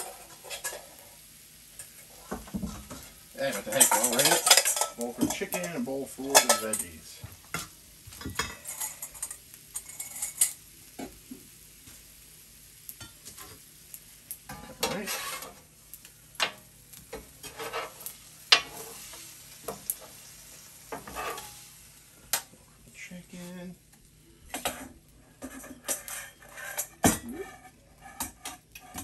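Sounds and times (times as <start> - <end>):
metal spatula scraping on griddle: 0.0 - 11.1, 14.5 - 15.7, 16.4 - 21.9, 24.5 - 29.0
faint sizzle: 0.0 - 29.0.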